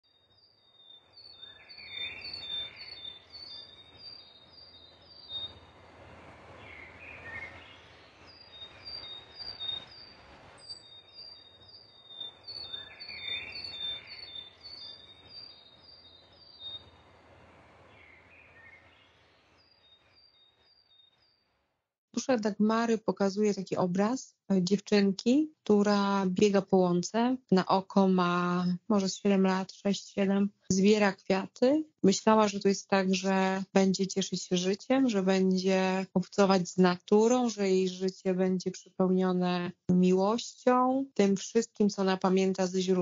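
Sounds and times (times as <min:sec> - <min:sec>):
soft outdoor hiss: 0:00.2 - 0:20.2
birds chirping: 0:06.6 - 0:16.9.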